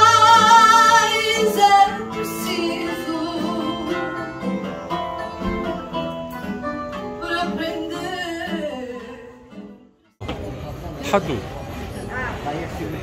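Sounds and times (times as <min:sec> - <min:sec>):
woman singing: 0:00.0 - 0:04.6, 0:07.0 - 0:09.8
plucked guitar: 0:00.0 - 0:10.2.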